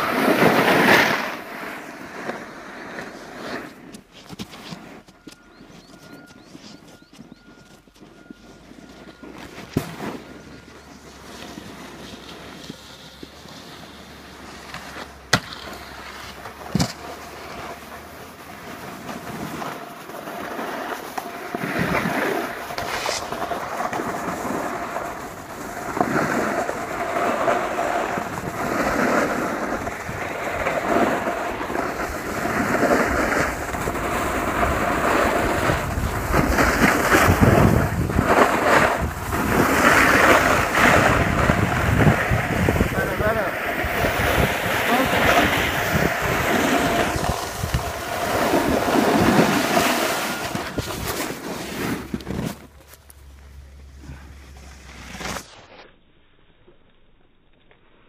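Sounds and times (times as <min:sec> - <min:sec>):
ski edges scraping on snow: 0:00.0 - 0:55.9
wind buffeting microphone: 0:21.6 - 0:51.2.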